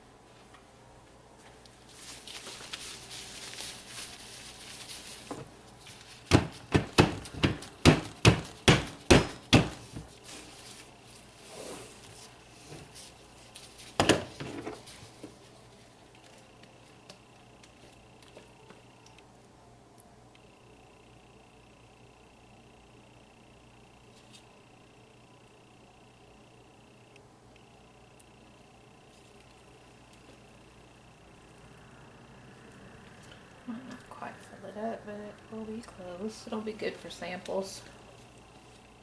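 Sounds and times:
soft rustling: 1.4 - 6.2.

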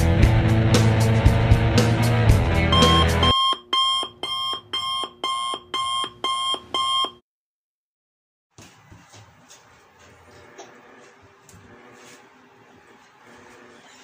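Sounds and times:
intro music: 0.0 - 3.3
short electronic beeps: 2.7 - 7.2.

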